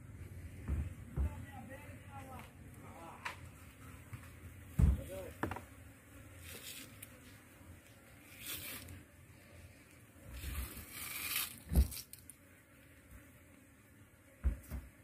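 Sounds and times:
sharp thump: 4.8s - 5.6s
knife ripping through fish: 10.8s - 12.2s.

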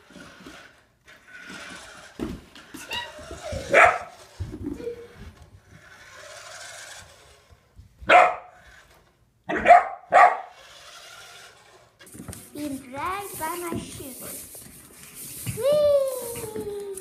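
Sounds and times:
puppy barking: 3.6s - 4.2s, 8.1s - 8.5s, 9.5s - 10.6s.

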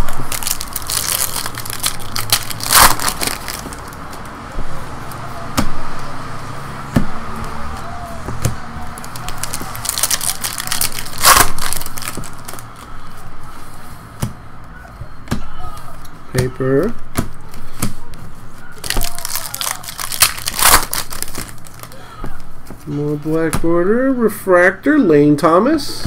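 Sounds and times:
cards rustling: 0.0s - 4.4s, 7.4s - 14.0s, 15.7s - 23.6s.

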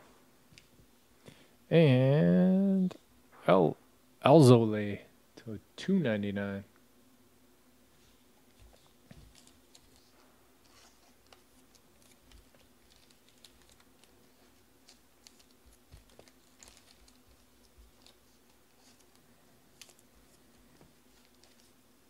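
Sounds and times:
low steady hum: 0.0s - 22.0s
faint small clicks and rustles: 8.0s - 22.0s.

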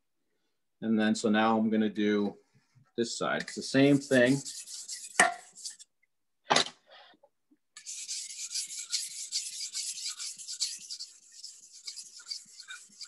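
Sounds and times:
knife scraping on sharpening stone: 3.4s - 5.9s, 7.8s - 13.0s.

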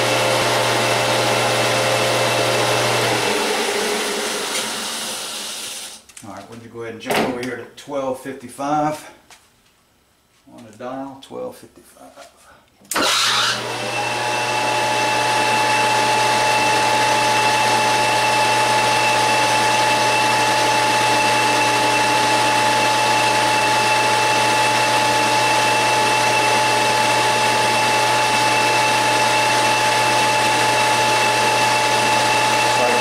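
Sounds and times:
metal lathe running: 12.9s - 33.0s.

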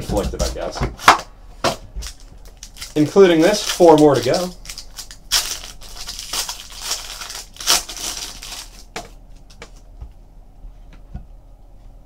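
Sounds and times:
foil wrapper tearing and crinkling: 2.0s - 9.1s.

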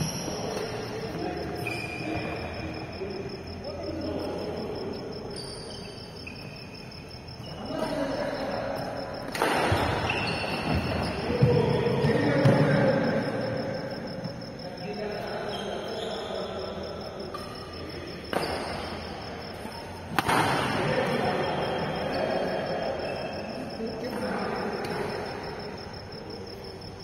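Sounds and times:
high pulsing chirp: 0.0s - 27.0s
players' voices: 0.0s - 27.0s
rackets hitting shuttlecock: 9.2s - 10.8s, 20.0s - 21.2s.

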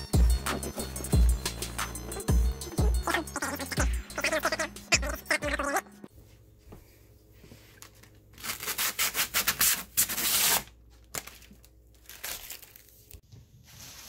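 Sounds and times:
plastic film peeling: 8.4s - 13.2s.

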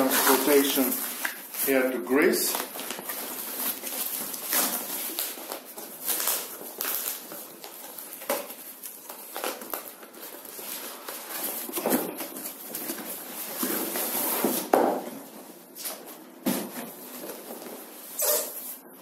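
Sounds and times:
cardboard scraping and rustling: 0.0s - 1.8s, 2.5s - 18.8s
box scuffs and knocks: 16.4s - 17.8s.

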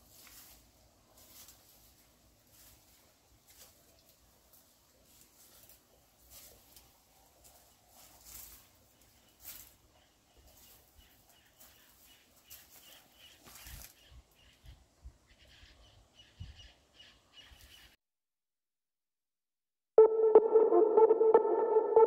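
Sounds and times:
footsteps on forest trail: 0.0s - 14.1s.

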